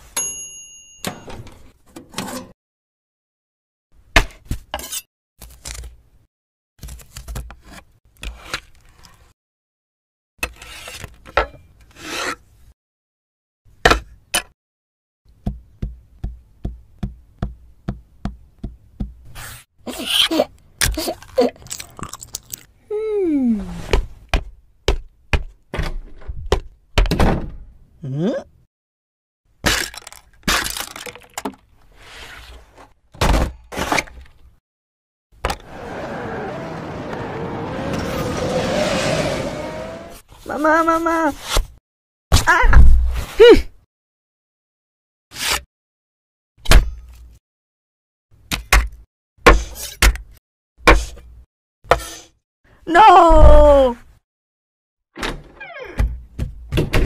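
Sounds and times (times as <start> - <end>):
timer bell ringing: 0.2 - 1.2
plastic pieces clinking: 29.7 - 31.6.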